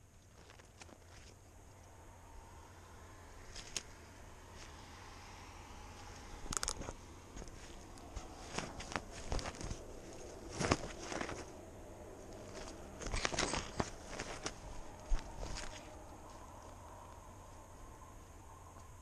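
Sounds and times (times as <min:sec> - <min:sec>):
cat steps rustling dry grass: 0:03.4 - 0:18.2.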